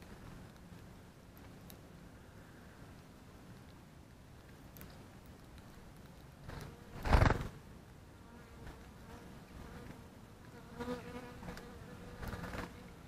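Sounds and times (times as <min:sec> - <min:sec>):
flying insect buzzing: 0:06.5 - 0:13.0.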